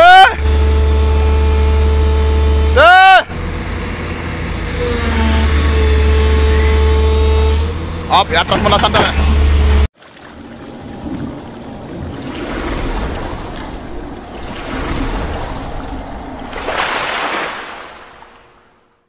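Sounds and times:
surf-like whooshing: 10.4s - 18.8s.

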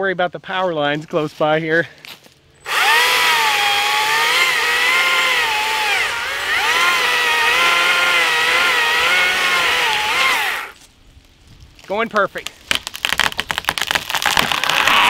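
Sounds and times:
chainsaw cutting wood: 2.7s - 10.8s, 12.7s - 15.0s.

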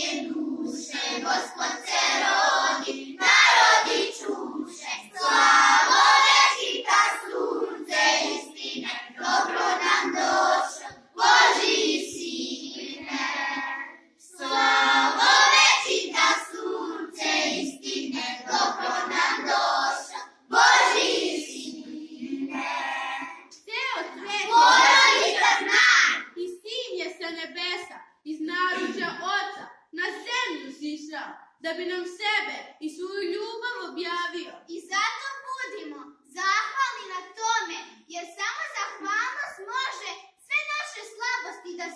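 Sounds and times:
children singing a carol: 0.0s - 23.4s, 24.0s - 26.1s.

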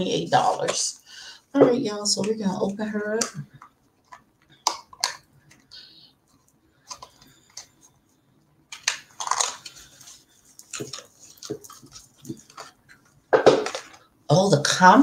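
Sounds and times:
wrapping crinkling and rustling: 8.7s - 14.1s.

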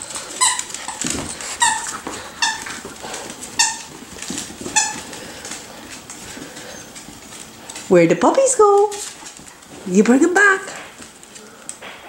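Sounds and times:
paws scuffling on tile: 0.0s - 12.0s
dog toy squeaking: 0.4s - 2.8s, 3.6s - 3.9s, 4.7s - 5.1s.

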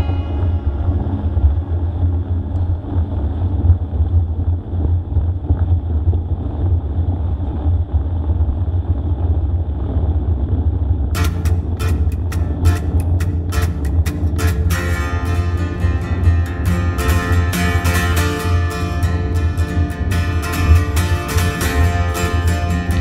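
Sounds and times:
wind buffeting microphone: 0.0s - 11.2s
low rumble and hiss of riding on snow: 0.1s - 11.1s.

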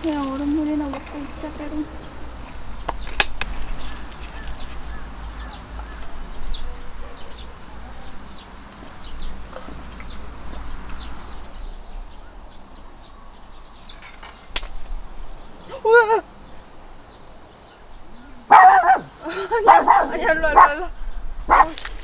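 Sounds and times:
outdoor background noise: 0.0s - 22.0s
small birds chirping: 0.0s - 22.0s
sharp clink: 3.1s - 3.5s.

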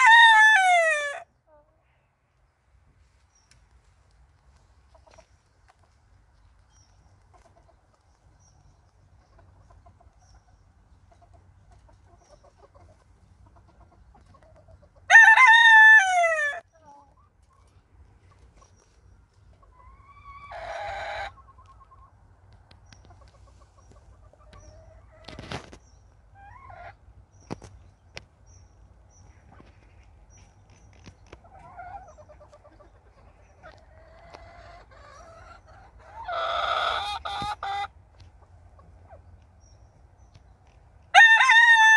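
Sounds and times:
rooster crowing: 0.0s - 1.3s, 15.1s - 16.6s, 41.1s - 41.9s
hens clucking: 4.3s - 28.3s, 29.2s - 39.6s.

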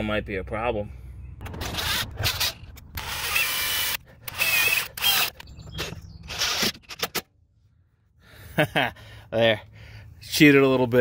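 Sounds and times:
cordless impact driver bursts: 1.6s - 5.4s.

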